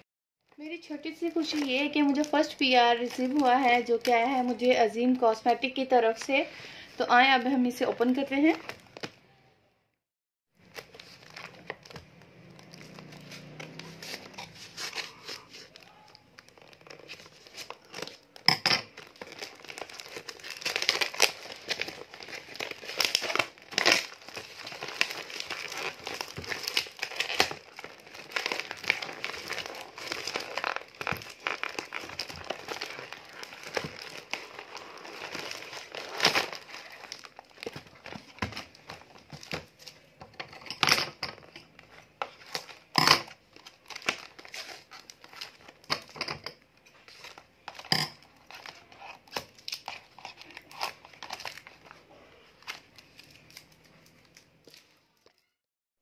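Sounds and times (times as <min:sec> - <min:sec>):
plastic bag crinkling: 0:00.6 - 0:06.2, 0:10.6 - 0:40.3, 0:41.8 - 0:46.2, 0:46.9 - 0:55.5
plastic ripping: 0:10.6 - 0:40.3, 0:42.2 - 0:46.2, 0:47.0 - 0:55.5.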